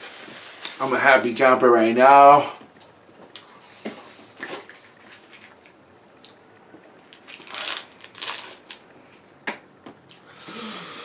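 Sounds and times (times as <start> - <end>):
plastic crinkling rustles: 0.0 - 1.4, 4.3 - 5.8, 7.0 - 8.8.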